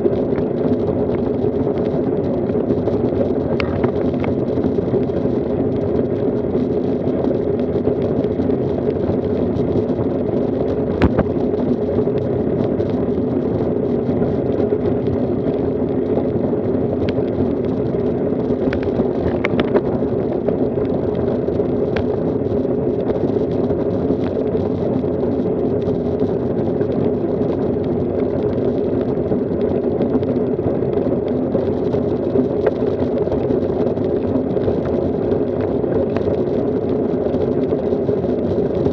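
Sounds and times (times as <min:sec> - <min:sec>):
bicycle tyres on asphalt: 0:00.0 - 0:38.9
wind rushing on microphone: 0:00.0 - 0:38.9.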